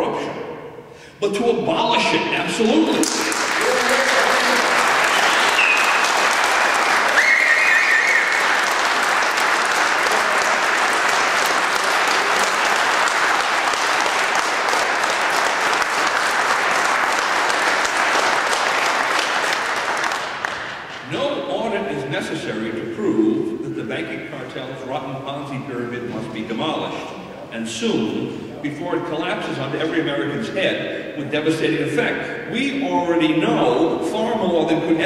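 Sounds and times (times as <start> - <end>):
audience applauding: 3.0 - 21.1
brief cheers: 3.5 - 8.8.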